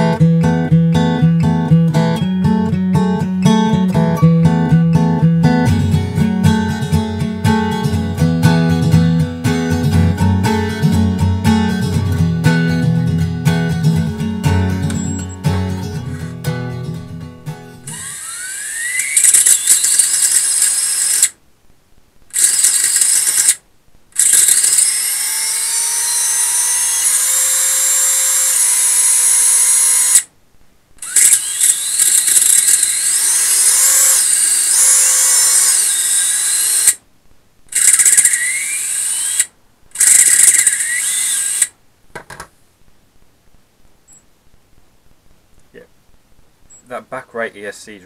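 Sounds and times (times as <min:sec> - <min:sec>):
electric motors whining: 0:17.9 - 0:21.3, 0:22.4 - 0:23.6, 0:24.2 - 0:30.3, 0:31.0 - 0:37.0, 0:37.8 - 0:41.7.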